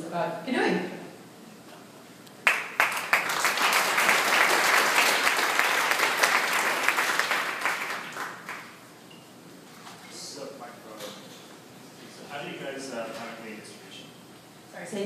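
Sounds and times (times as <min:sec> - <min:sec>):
audience applauding: 0:02.4 - 0:08.8.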